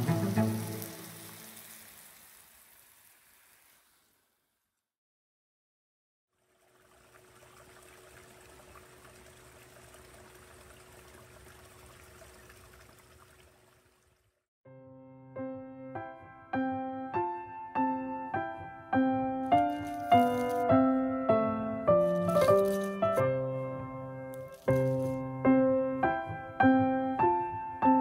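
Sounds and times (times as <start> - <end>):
music: 0.0 - 1.3, 14.7 - 28.0
running water: 0.0 - 4.3, 6.3 - 14.5, 19.5 - 20.8, 24.4 - 25.4.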